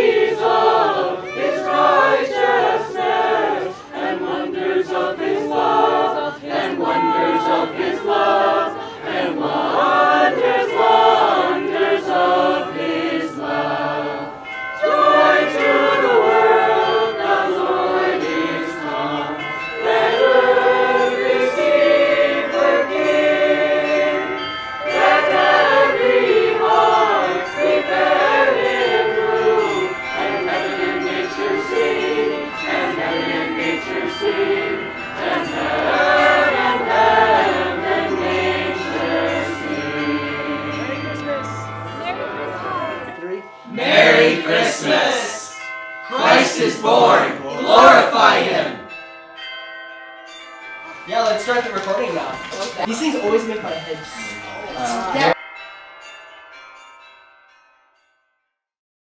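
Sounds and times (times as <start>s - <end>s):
choir singing a carol: 0.0s - 49.5s, 50.9s - 55.6s.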